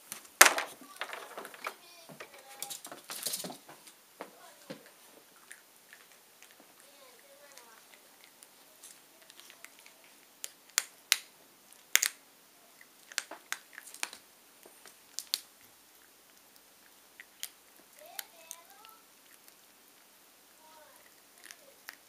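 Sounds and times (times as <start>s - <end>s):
dog crunching a hard treat: 4.8s - 12.2s, 12.8s - 20.1s, 21.0s - 22.0s.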